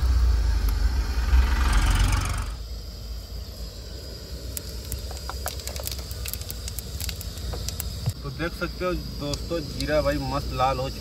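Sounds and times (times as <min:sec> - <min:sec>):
low rumble: 0:00.0 - 0:04.4
seeds crackling in hot oil: 0:00.0 - 0:08.3.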